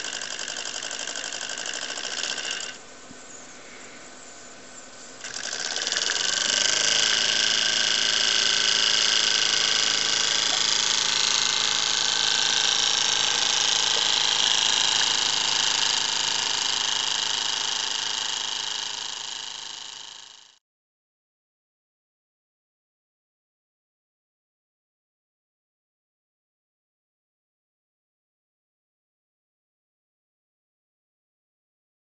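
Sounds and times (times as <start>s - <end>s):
model steam engine chuffing: 0.0s - 2.8s, 5.2s - 20.6s.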